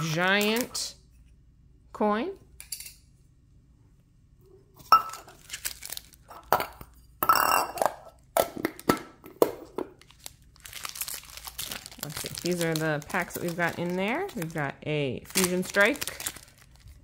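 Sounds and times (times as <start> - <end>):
foil packs crinkling: 5.2 - 6.3, 10.0 - 17.0.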